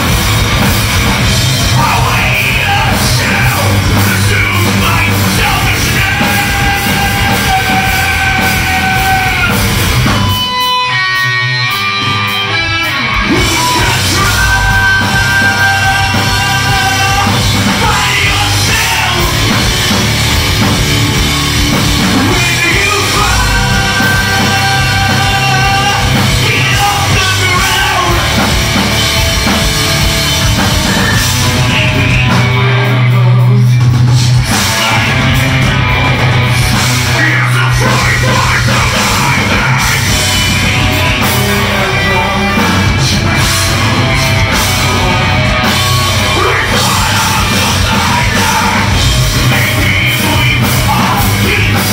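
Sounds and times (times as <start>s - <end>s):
heavy rock band playing: 0.0s - 51.9s
shouted vocals: 1.7s - 10.0s, 34.5s - 51.9s.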